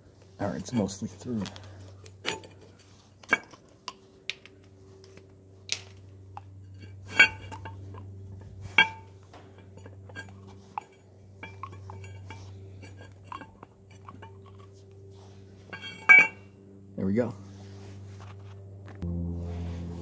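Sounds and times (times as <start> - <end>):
low hum: 0.0 - 20.0
metal clinks and knocks: 0.5 - 4.0, 5.8 - 16.6.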